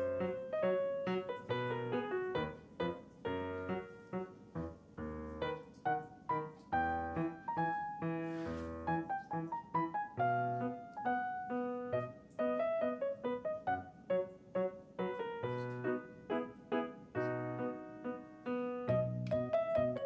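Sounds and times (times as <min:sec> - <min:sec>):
piano music: 0:00.0 - 0:20.0.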